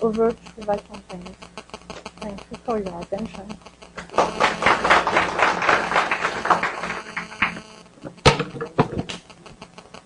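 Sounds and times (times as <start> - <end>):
audience applauding: 4.0 - 7.7.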